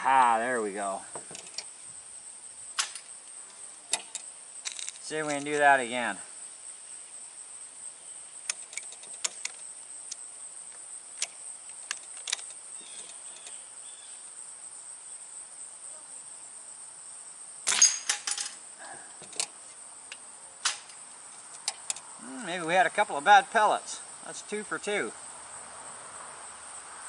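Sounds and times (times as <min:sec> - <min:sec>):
metal plate clattering: 0:17.7 - 0:18.6.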